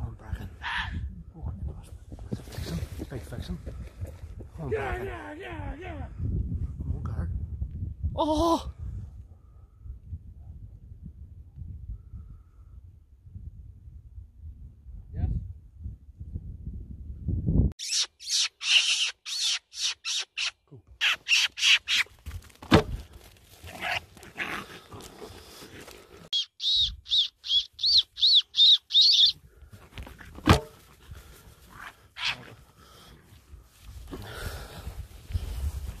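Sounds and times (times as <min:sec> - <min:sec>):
shrill distress squeals: 0:17.8 - 0:22.1.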